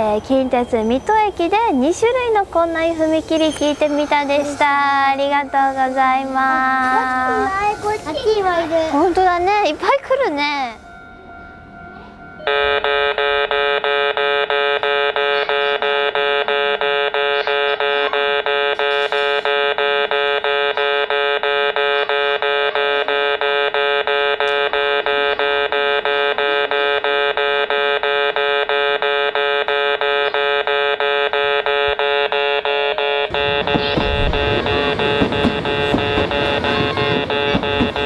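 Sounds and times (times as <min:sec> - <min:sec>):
level crossing warning buzzer: 0:12.4 - 0:38.0.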